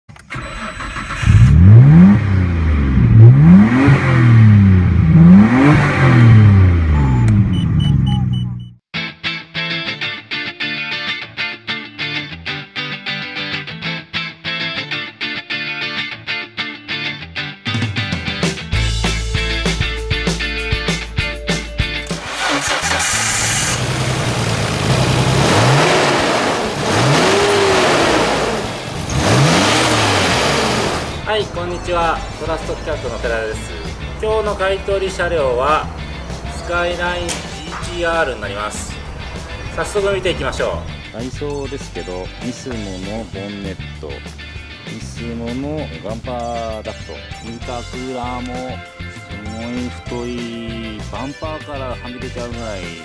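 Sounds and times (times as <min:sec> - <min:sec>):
car engine revving: 0:00.4 - 0:08.5, 0:22.0 - 0:41.2.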